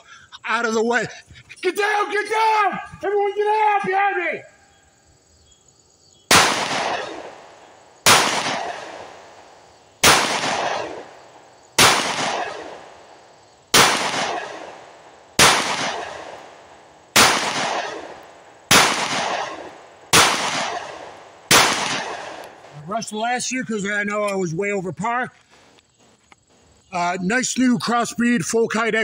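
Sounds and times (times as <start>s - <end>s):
pistol shots echoing: 6.3s - 22.7s.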